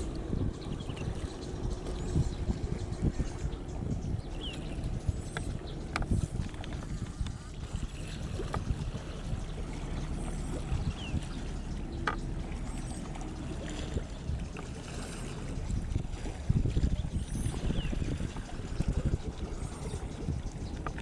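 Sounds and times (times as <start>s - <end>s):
water splashing into sea: 5.4s - 21.0s.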